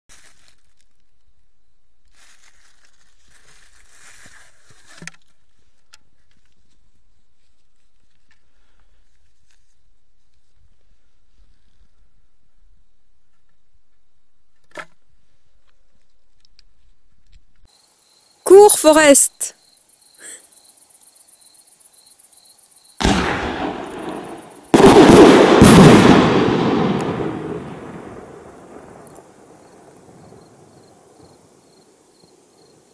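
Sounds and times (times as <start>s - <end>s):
crickets chirping: 17.7s - 32.9s
firework launch thump: 23.0s - 28.2s
firework burst boom: 23.0s - 29.0s.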